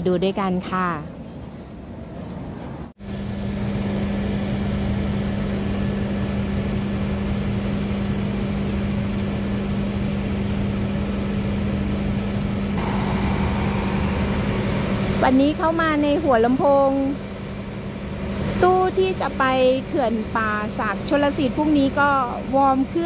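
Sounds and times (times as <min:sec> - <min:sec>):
diesel train engine idling: 0:12.8 - 0:23.0.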